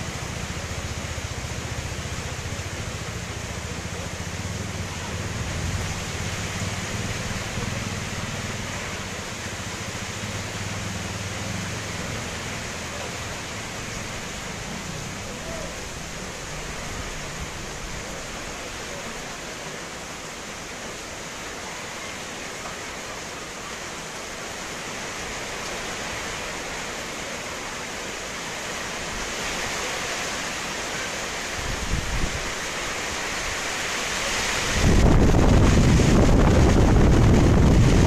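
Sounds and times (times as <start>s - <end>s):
heavy rain hissing: 0.0s - 38.0s
wind gust on microphone: 31.6s - 32.6s, 34.2s - 38.0s.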